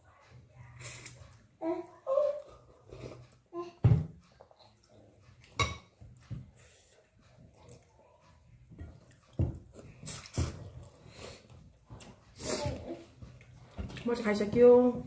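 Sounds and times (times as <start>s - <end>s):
plates and bowls clinking: 5.4s - 6.2s.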